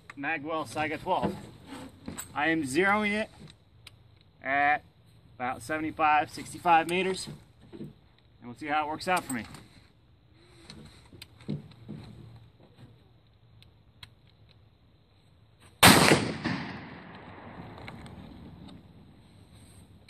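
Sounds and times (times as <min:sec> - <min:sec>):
shotgun shot with echo: 0:15.8 - 0:17.6.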